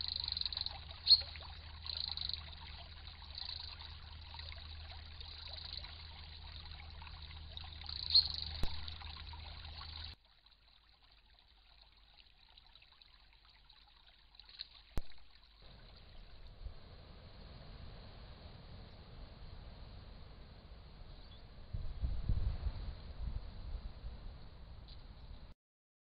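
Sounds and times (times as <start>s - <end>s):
stream trickling over stones: 0.0s - 17.0s.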